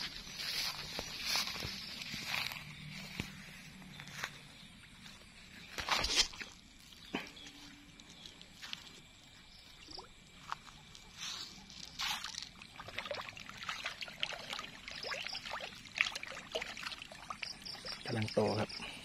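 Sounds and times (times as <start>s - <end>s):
fish splashing at water surface: 11.9s - 18.1s.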